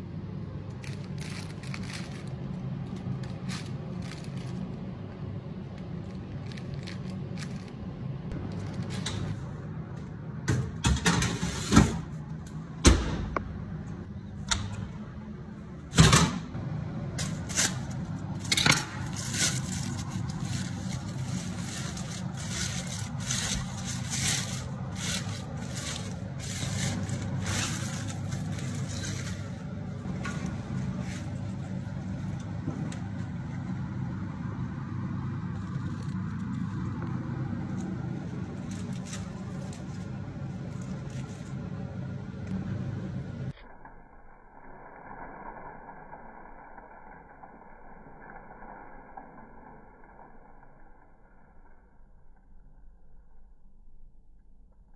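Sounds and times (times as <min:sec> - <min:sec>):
steady low hum: 0:00.0 - 0:54.9
aluminium foil crinkling: 0:00.6 - 0:09.6, 0:17.2 - 0:33.4, 0:35.0 - 0:42.6.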